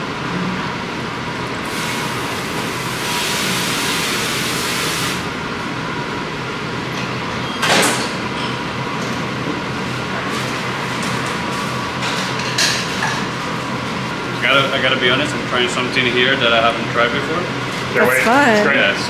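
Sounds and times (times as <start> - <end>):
kitchen hum: 17.8 - 19.0.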